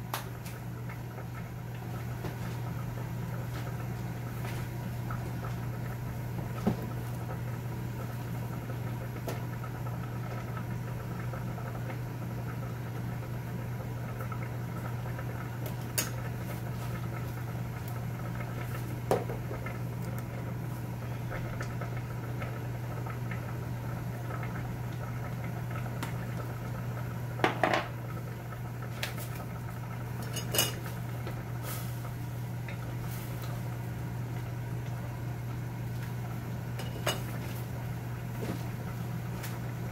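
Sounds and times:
utensils and dishes clinking: 30.2 - 30.8.

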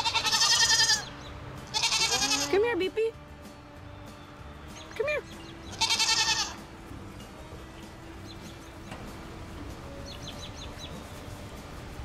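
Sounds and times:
goat bleating: 0.0 - 2.6, 5.7 - 6.7.

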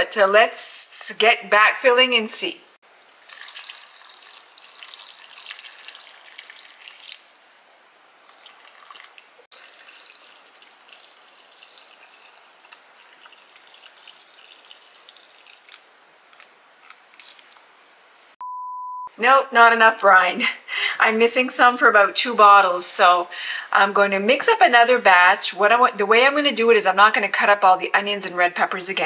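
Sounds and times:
liquid trickling and splashing: 3.0 - 16.5.

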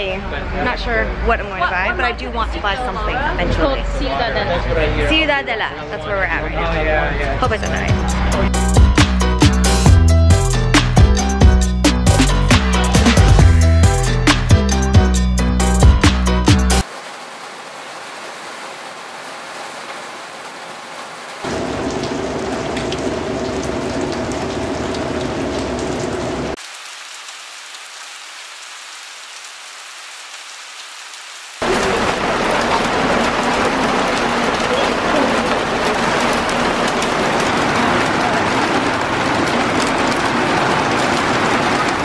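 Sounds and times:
background music: 7.1 - 16.8
rain pattering on pavement: 16.8 - 42.0.

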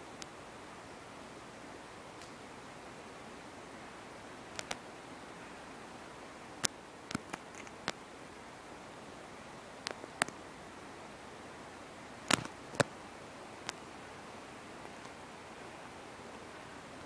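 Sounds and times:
steady hiss: 0.0 - 17.0
sharp clicks and snaps: 4.5 - 4.8, 6.6 - 8.0, 9.8 - 10.4, 12.3 - 12.9.

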